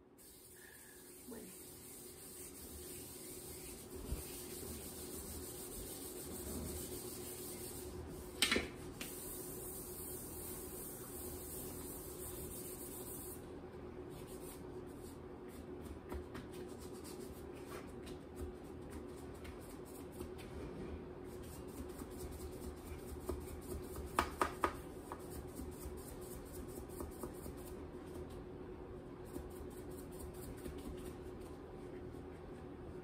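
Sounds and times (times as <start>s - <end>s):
smoother scraping over fondant: 0.2s - 8.3s.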